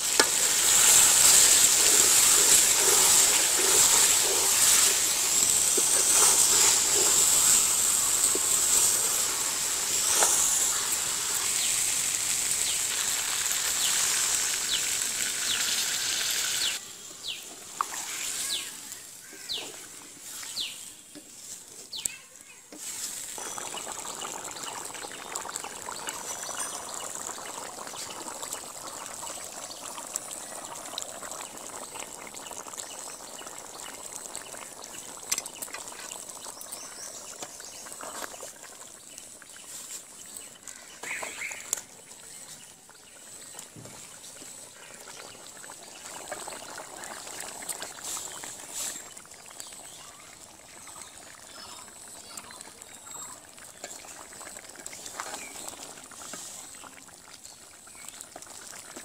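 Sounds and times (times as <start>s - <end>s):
curry bubbling in a pot: 0.0s - 15.9s, 23.3s - 59.0s
spatula scraping a pot: 0.2s - 11.5s.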